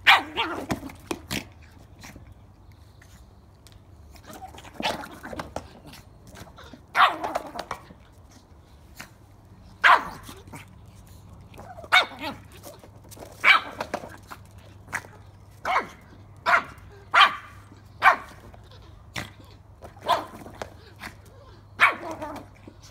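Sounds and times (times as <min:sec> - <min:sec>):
puppy barking: 0:00.0 - 0:00.7, 0:06.9 - 0:07.6, 0:09.8 - 0:10.3, 0:11.8 - 0:12.4, 0:13.4 - 0:13.9, 0:15.6 - 0:18.5, 0:20.0 - 0:20.4, 0:21.8 - 0:22.4.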